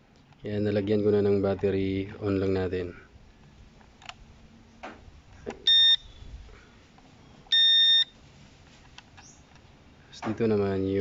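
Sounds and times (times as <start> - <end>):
remote controller beeping: 5.7 - 6.1, 7.5 - 8.1.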